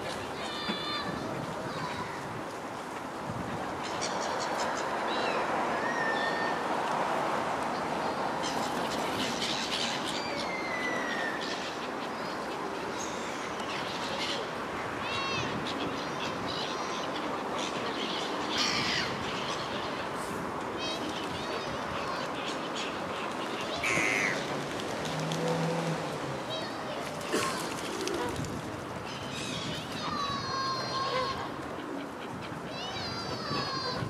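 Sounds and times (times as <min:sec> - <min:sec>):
waterbirds squawking and calling: 0:08.0 - 0:20.2, 0:20.8 - 0:28.4, 0:29.0 - 0:34.0.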